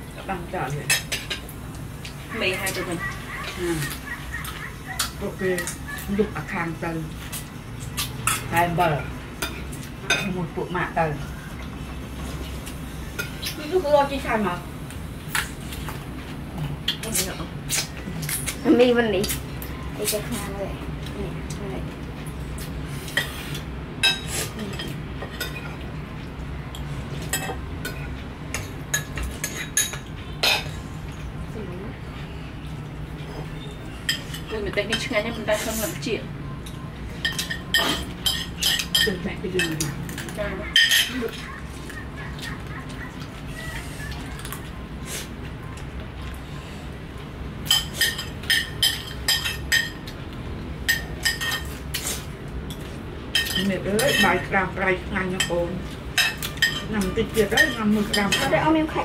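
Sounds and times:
spoons clinking on ceramic bowls: 0:36.7 - 0:41.4, 0:47.6 - 0:50.1, 0:50.9 - 0:51.8, 0:52.7 - 0:54.5, 0:56.2 - 0:58.8.

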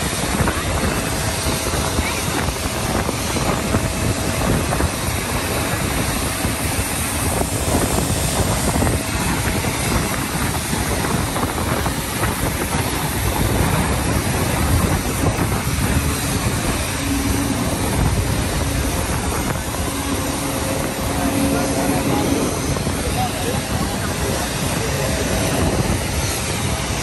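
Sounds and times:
aircraft engine rumble: 0:00.0 - 0:27.0.

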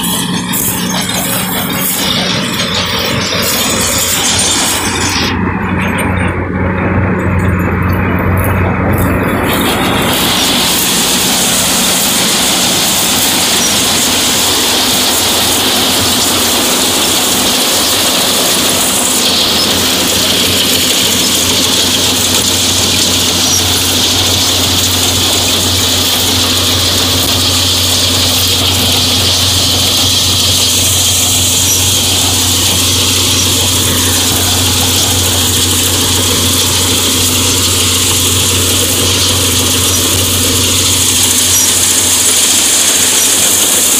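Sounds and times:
constant high hiss: 0:00.0 - 0:43.9
tractor engine and threshing machinery: 0:00.0 - 0:43.9.

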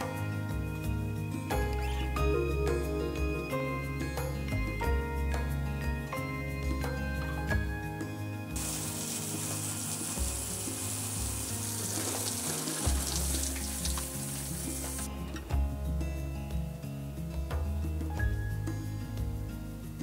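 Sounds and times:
background music: 0:00.0 - 0:20.0
hose spraying water on glass: 0:08.6 - 0:15.1.

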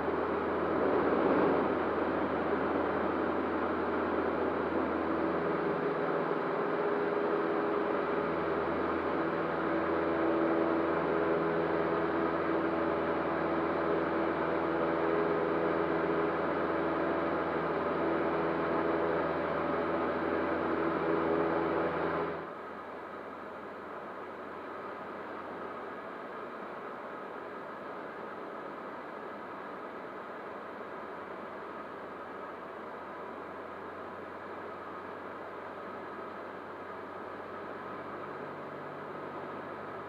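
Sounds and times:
airplane engine and propeller drone: 0:00.0 - 0:40.0.

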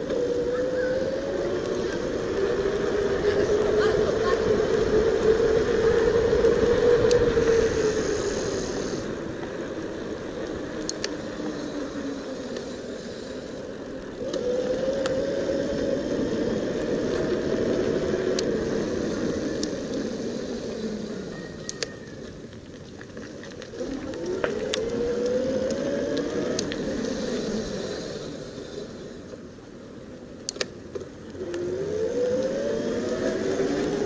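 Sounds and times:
electric bike motor whining: 0:00.0 - 0:34.0
wind and tyre noise: 0:00.0 - 0:34.0
light ticks: 0:10.4 - 0:11.2, 0:12.5 - 0:12.7, 0:18.3 - 0:18.5, 0:19.1 - 0:20.2, 0:21.6 - 0:27.3.

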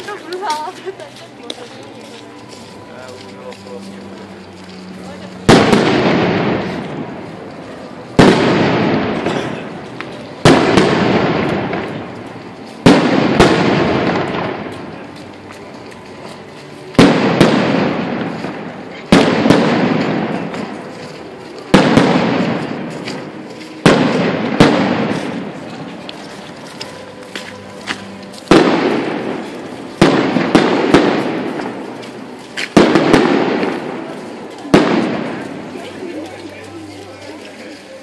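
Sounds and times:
fireworks bangs: 0:05.4 - 0:15.1, 0:16.9 - 0:35.8.

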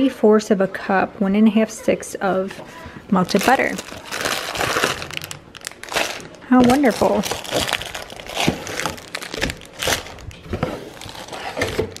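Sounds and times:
foil pouches crinkling: 0:03.2 - 0:12.0.

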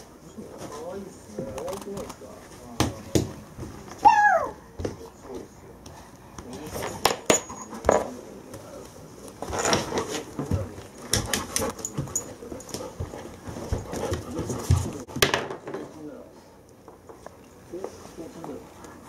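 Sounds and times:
dog clicking on wooden floor: 0:09.5 - 0:15.7.

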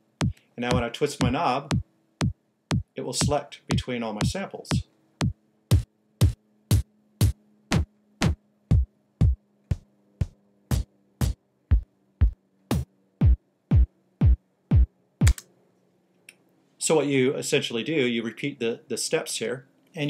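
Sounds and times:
electronic kick drum beat: 0:00.0 - 0:15.4.

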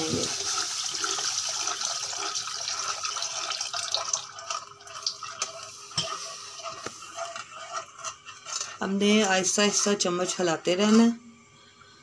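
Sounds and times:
milk hissing in hot pan: 0:00.0 - 0:10.9
wooden spoon scraping pan: 0:04.3 - 0:11.2.

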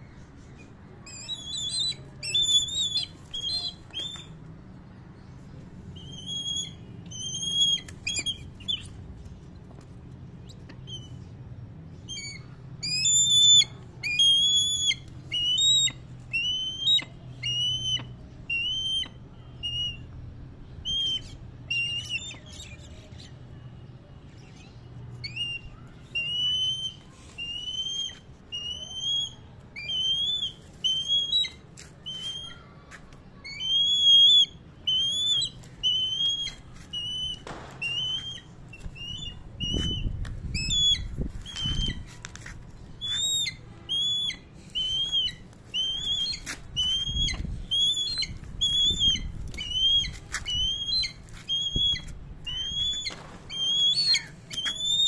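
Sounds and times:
bird of prey whistled call: 0:43.0 - 0:55.0.

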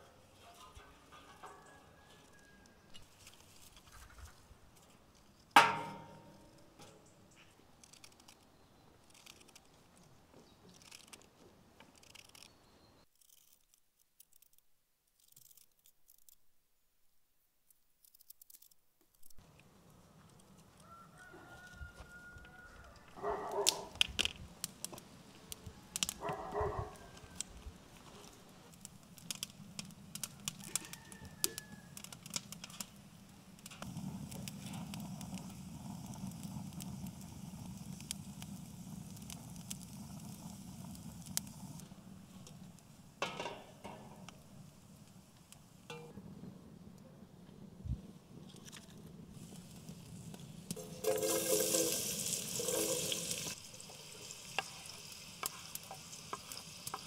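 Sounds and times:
wood fire crackling: 0:00.0 - 0:12.6, 0:19.2 - 0:57.0
rooster crowing: 0:01.3 - 0:03.0, 0:20.8 - 0:23.7, 0:25.6 - 0:27.7, 0:30.3 - 0:32.1.

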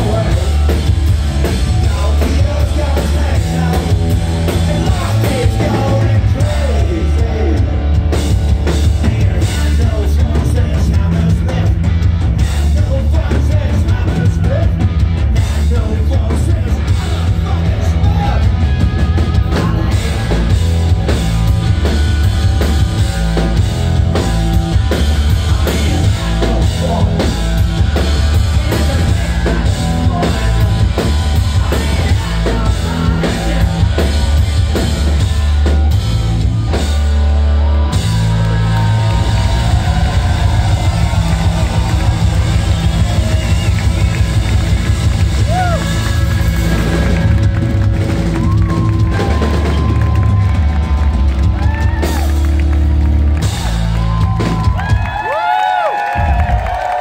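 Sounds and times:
person singing: 0:00.0 - 0:07.8, 0:24.2 - 0:35.8
bass guitar: 0:00.0 - 0:57.0
electric guitars: 0:00.0 - 0:57.0
pounding drum kit: 0:00.0 - 0:57.0.

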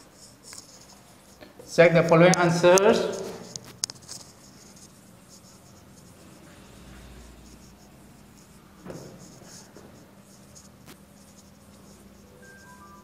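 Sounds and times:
marker scratching on whiteboard: 0:00.0 - 0:13.0.

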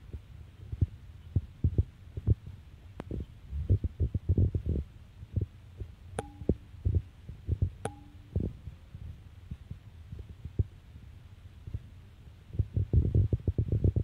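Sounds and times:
low thumps and rumble: 0:00.7 - 0:02.4
two-note tone: 0:07.9 - 0:08.4.

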